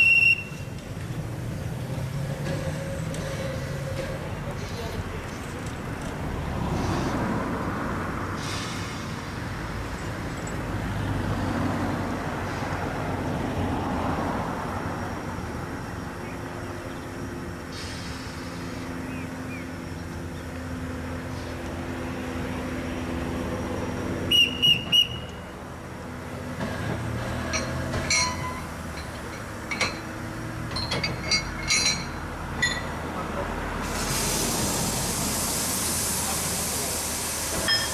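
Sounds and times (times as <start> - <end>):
short high whistle toots: 0.0 - 0.6, 24.3 - 25.4
steam locomotive rolling rumble: 0.0 - 37.9
metal clanks of wagons coupling: 26.6 - 33.1.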